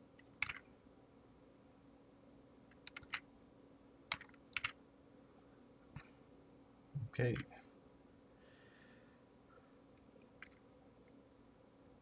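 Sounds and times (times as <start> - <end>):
faint steady hum: 0.0 - 12.0
keyboard keystrokes: 0.3 - 0.6, 2.7 - 3.2, 4.1 - 4.8.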